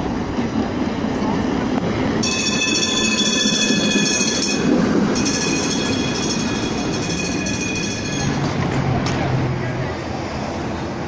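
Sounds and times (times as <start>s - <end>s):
streetcar rumble: 0.0s - 11.0s
streetcar wheel squeal: 2.0s - 10.6s.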